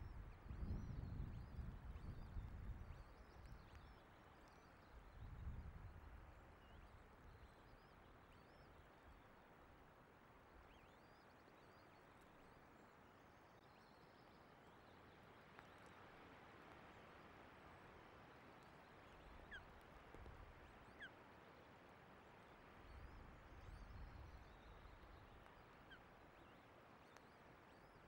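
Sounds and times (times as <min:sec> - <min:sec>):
wind buffeting microphone: 0:00.0 - 0:03.0
wind and rain hiss: 0:00.0 - 0:10.9, 0:15.0 - 0:28.0.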